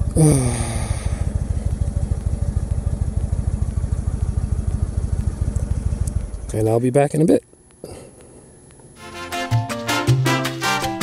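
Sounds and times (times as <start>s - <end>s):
motorcycle engine idling: 0.0s - 6.8s.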